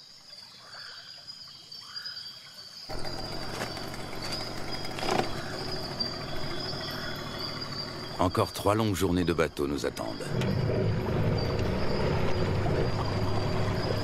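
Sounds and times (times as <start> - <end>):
high drone of insects: 0.0 - 14.0
rising and falling calls: 2.9 - 14.0.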